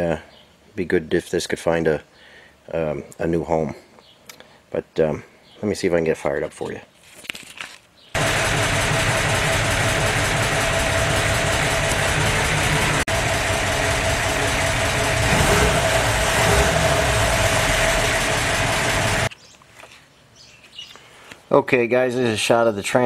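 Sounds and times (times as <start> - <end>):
petrol engine running: 8.2 - 19.3.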